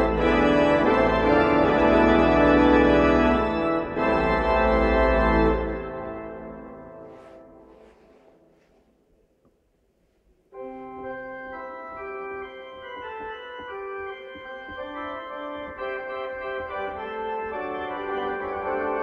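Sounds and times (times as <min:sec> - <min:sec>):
organ chords: 0:00.0 - 0:08.2, 0:10.5 - 0:19.0.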